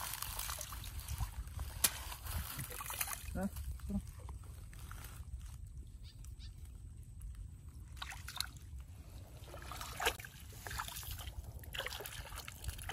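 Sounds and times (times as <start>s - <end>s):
feet splashing through muddy water: 9.3s - 12.9s.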